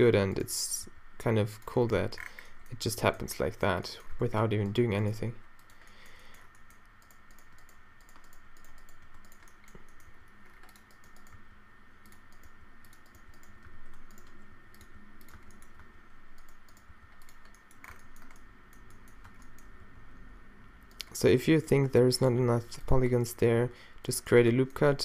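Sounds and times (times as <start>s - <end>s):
thin steady whine: 0.0s - 25.0s
computer keyboard keystrokes: 5.6s - 11.4s, 12.0s - 19.7s.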